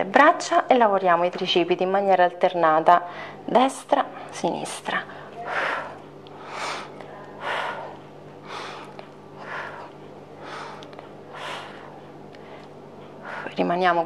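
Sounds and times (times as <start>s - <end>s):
woman breathing: 3.0s - 3.5s, 5.0s - 13.7s.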